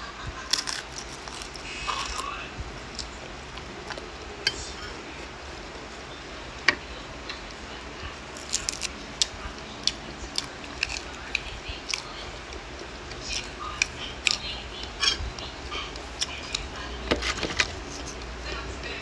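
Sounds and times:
lettuce leaves tearing: 0.4s - 3.2s, 8.3s - 12.2s
person chewing food: 0.4s - 19.0s.

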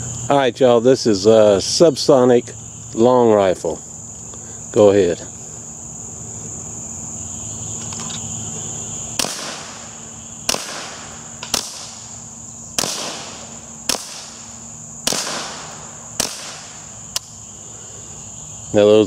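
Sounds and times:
high insect chirr: 0.0s - 19.0s
suppressed rifle shots: 9.2s - 12.1s, 12.8s - 17.3s.

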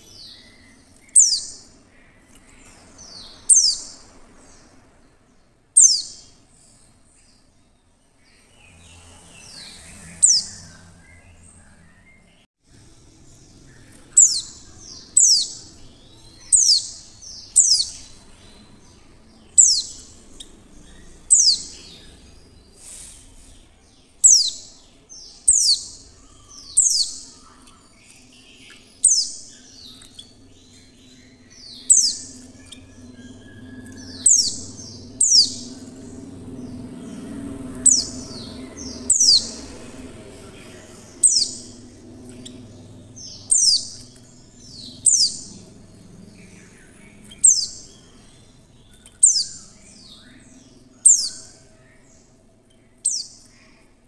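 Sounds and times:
bird high sharp chirps: 0.0s - 1.8s, 2.7s - 4.0s, 5.8s - 6.4s, 13.8s - 18.8s, 24.2s - 30.5s, 31.3s - 36.0s, 41.2s - 45.7s.

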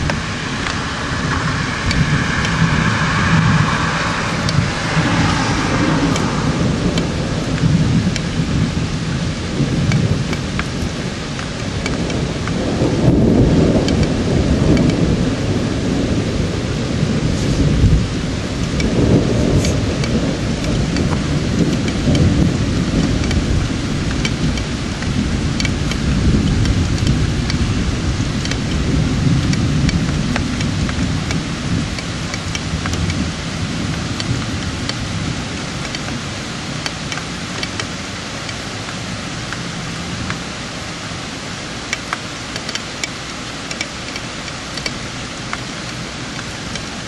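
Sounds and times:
rolling thunder: 0.0s - 42.4s
steady rain: 0.0s - 47.0s
sharp drop ticks: 35.8s - 36.2s, 41.9s - 45.7s.

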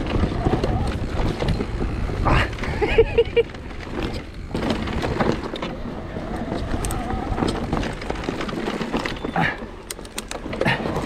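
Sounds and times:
bike rattling over bumps: 0.0s - 11.0s
bike tyres on dirt: 0.0s - 11.0s
wind rumbling on microphone: 0.0s - 11.0s.

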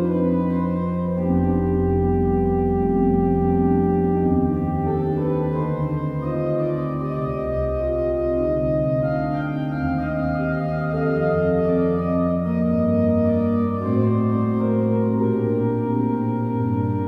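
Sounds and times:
pipe organ chords: 0.0s - 17.0s.

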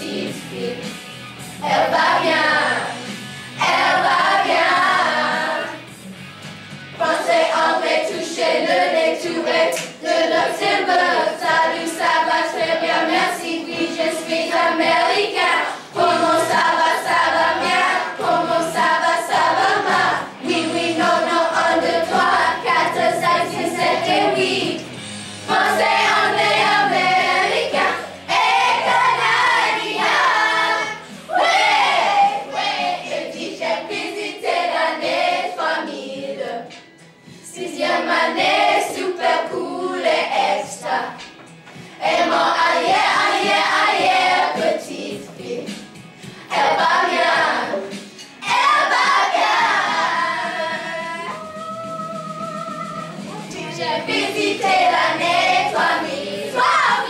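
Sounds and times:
children singing: 0.0s - 0.8s, 1.6s - 3.0s, 3.6s - 5.9s, 7.0s - 36.7s, 37.5s - 41.2s, 42.0s - 45.8s, 46.5s - 57.0s.

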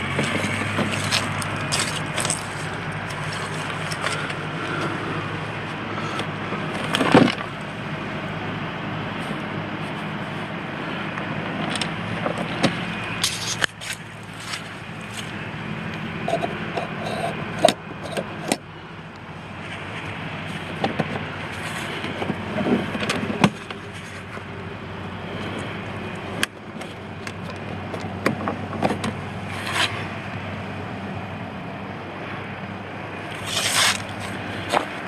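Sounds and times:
steady low hum: 0.0s - 35.0s
rustling: 33.4s - 34.9s.

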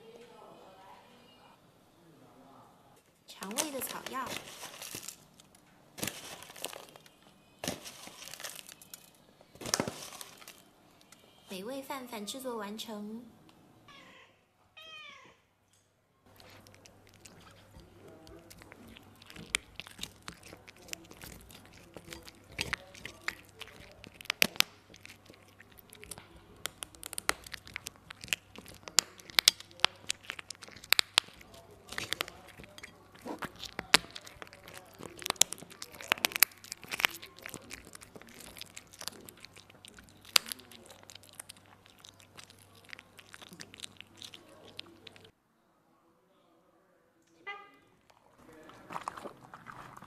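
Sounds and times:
cat chewing meat: 3.4s - 10.6s, 16.3s - 45.3s, 48.1s - 50.0s.

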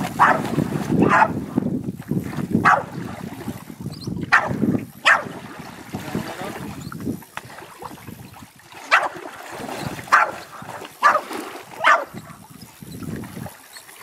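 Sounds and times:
dog barking: 0.2s - 1.4s, 2.6s - 2.9s, 4.3s - 5.3s, 8.9s - 9.2s, 10.1s - 12.2s.

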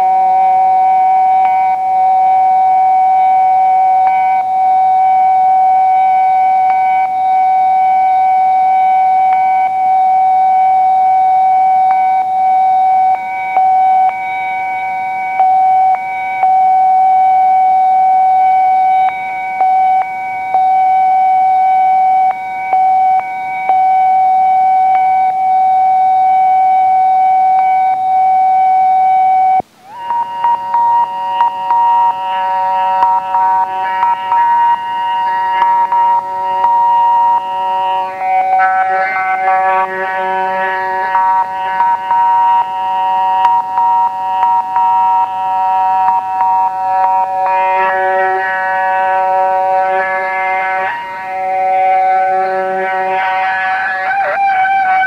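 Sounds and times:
loud sustained tone: 29.8s - 55.0s.

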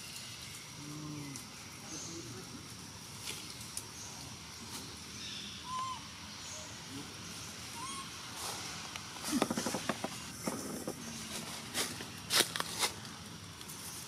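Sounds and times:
dry leaves crackling and rustling: 0.0s - 5.3s, 7.8s - 14.0s
faint high bird chirps: 5.2s - 6.8s, 7.7s - 8.2s.

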